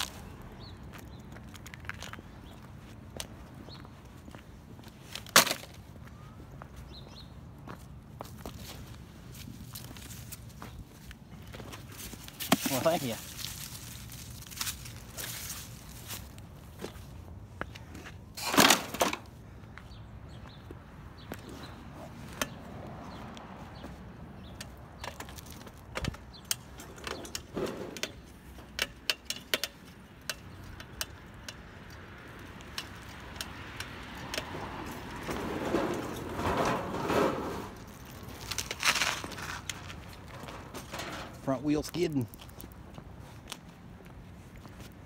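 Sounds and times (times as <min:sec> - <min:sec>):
bicycle and cart rattling: 0:08.2 - 0:16.4, 0:24.4 - 0:43.0.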